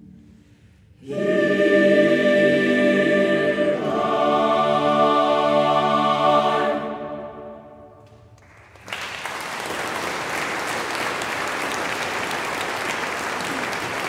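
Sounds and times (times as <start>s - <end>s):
choir singing chord: 1.0s - 8.0s
audience applause: 8.4s - 14.0s.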